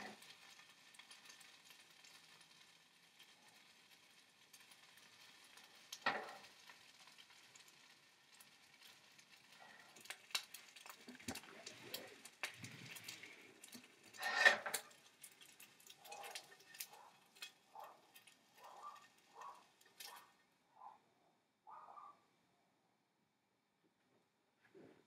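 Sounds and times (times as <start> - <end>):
spatula scraping skillet: 0.0 - 1.4, 5.5 - 6.7, 9.6 - 20.4
pan clattering: 14.1 - 15.0.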